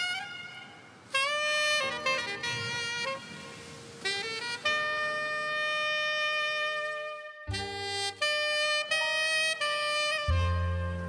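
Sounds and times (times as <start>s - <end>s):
jazz saxophone long notes: 0.0s - 11.0s
bass line: 10.1s - 11.0s.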